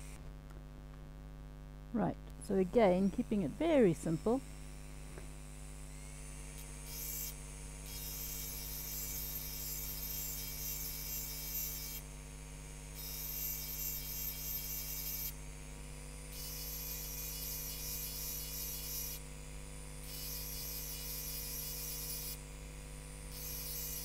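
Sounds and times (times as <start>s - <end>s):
rotary engraving drill humming: 2.5s - 24.0s.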